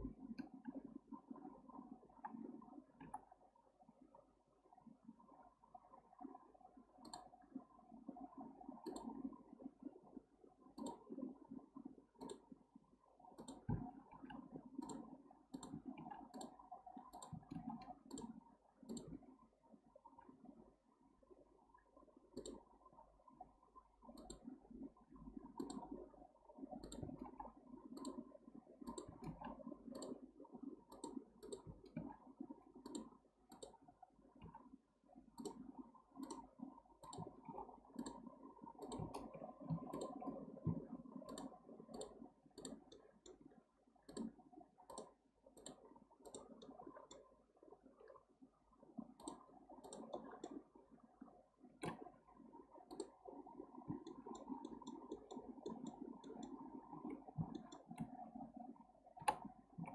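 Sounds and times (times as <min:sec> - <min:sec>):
computer mouse clicking: 0:07.0 - 0:07.3, 0:08.8 - 0:09.3, 0:10.8 - 0:11.2, 0:12.2 - 0:12.5, 0:13.4 - 0:19.2, 0:22.3 - 0:22.7, 0:24.1 - 0:24.6, 0:25.4 - 0:26.1, 0:26.8 - 0:32.2, 0:32.8 - 0:34.6, 0:35.4 - 0:43.4, 0:44.0 - 0:47.3, 0:49.2 - 0:50.6, 0:51.8 - 0:52.1, 0:52.8 - 0:53.2, 0:53.9 - 0:58.2, 0:59.2 - 0:59.9.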